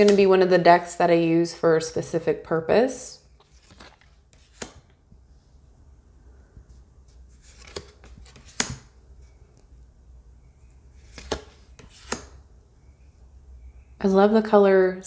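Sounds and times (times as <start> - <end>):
faint low room hum: 0.0 - 15.0
card snaps: 3.4 - 4.9, 7.6 - 8.9.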